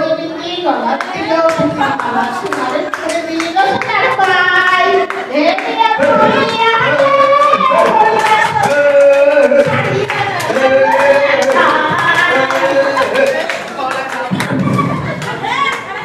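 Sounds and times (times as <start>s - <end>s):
woman singing into microphone: 0.8s - 13.4s
hand claps: 1.0s - 16.0s.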